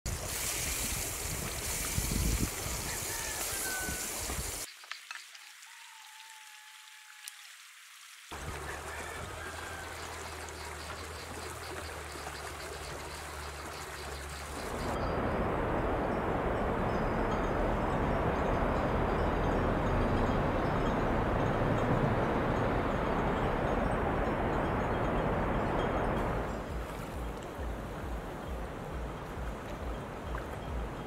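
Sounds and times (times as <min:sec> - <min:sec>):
loud hiss: 0:00.1 - 0:04.7
stream rushing over rocks: 0:00.1 - 0:31.0.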